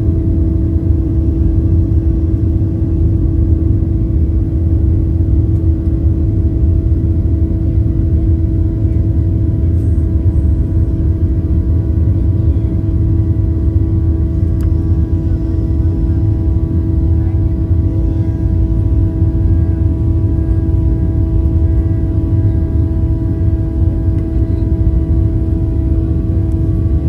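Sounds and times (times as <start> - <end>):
droning hum: 0.0 - 27.0.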